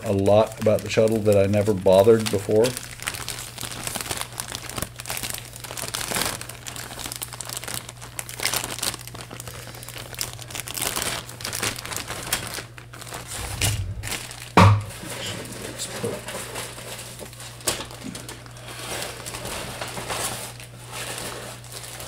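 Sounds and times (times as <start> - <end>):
plastic bag crinkling: 0.0 - 22.0
steady low hum: 9.3 - 16.5.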